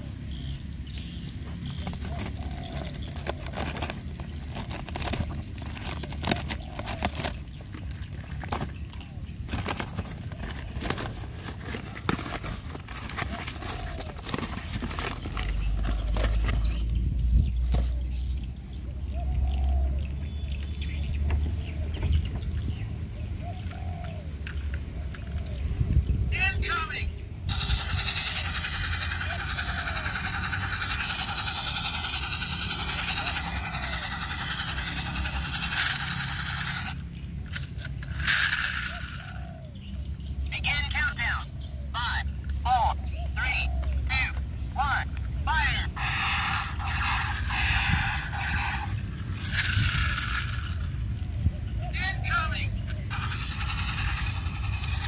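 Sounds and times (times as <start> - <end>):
toy engine buzzing hum: 1.0 - 17.9, 27.5 - 39.6, 44.1 - 51.2, 52.2 - 55.0
low rumble: 27.3 - 39.4, 44.6 - 51.8.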